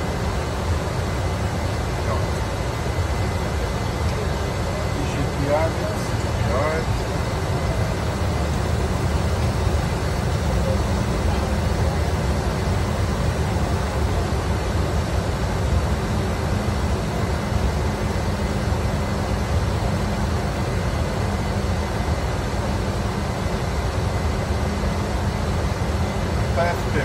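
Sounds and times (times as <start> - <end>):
aircraft cabin rumble and hiss: 0.0 - 27.0.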